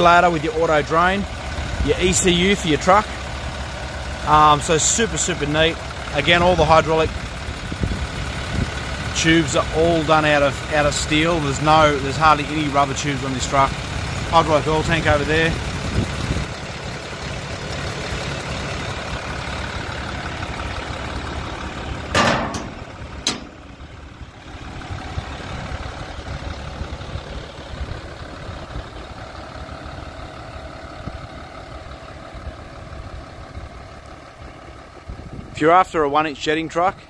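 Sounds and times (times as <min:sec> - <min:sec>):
diesel engine idling: 0:00.0 - 0:37.0
short knocks: 0:22.1 - 0:23.5.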